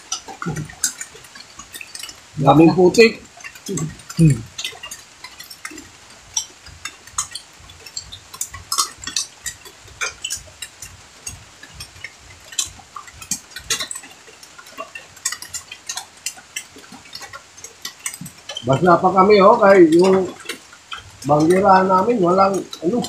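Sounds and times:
knocks and rustles: 0.0 - 2.6.

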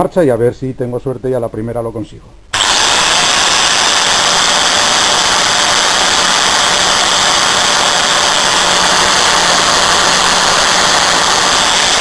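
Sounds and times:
angle grinder cutting glass tube: 2.6 - 12.0.

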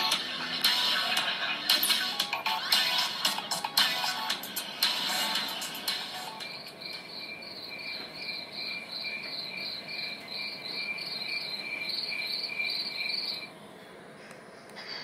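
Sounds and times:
crickets chirping: 6.4 - 13.5.

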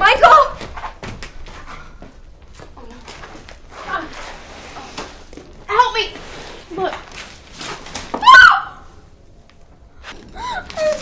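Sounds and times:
woman gasping: 10.3 - 11.0.

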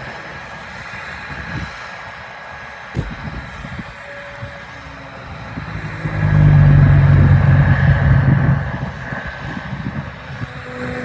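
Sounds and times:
vehicle engine passing by: 4.2 - 11.0.

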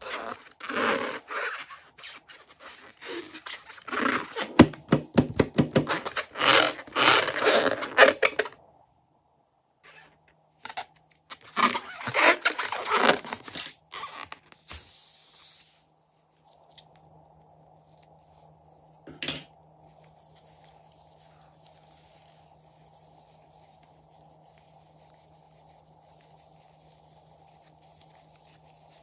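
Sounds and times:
balloon rubbing and squeaking: 0.0 - 8.5, 9.9 - 14.6.

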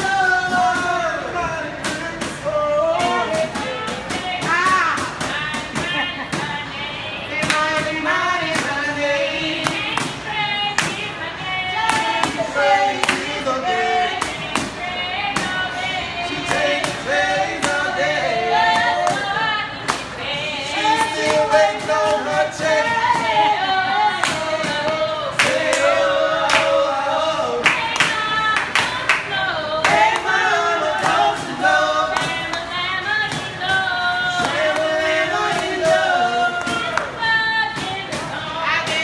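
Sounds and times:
group singing: 0.0 - 39.0
hands clapping: 10.8 - 11.0, 13.0 - 13.4, 24.2 - 26.8, 27.6 - 30.4, 32.1 - 32.6, 36.6 - 37.2.

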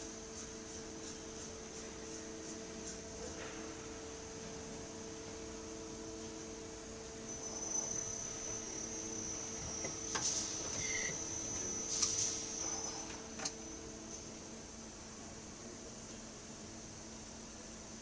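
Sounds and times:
high thin whine: 0.0 - 14.6
lathe humming: 3.8 - 14.4.

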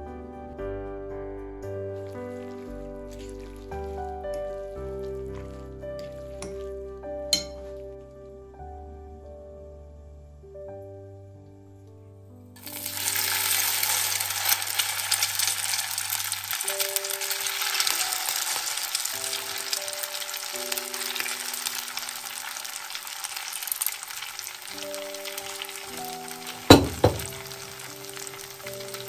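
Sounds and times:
soft background music: 0.0 - 29.0
potato sizzling in oil: 2.0 - 6.7, 12.6 - 29.0.

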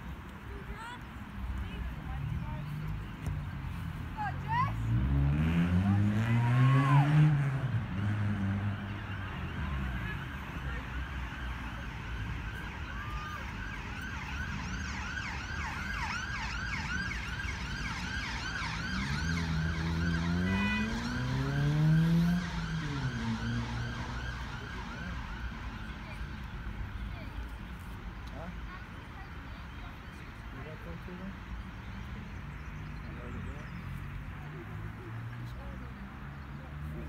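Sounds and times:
emergency vehicle siren wailing: 5.4 - 27.0.

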